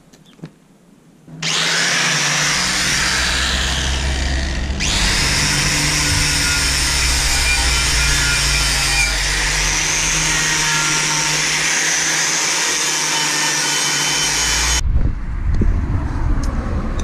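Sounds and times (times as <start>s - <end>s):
low rumbling: 1.3s - 12.2s, 14.1s - 17.0s
angle grinder grinding metal: 1.3s - 14.8s.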